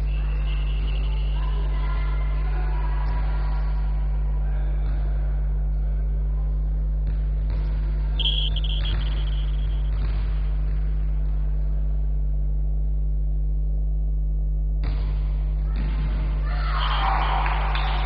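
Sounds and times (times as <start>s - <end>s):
faint hall background noise: 0.0s - 13.5s, 15.3s - 18.0s
steady low hum: 0.0s - 16.6s
short high tone: 8.2s - 9.9s.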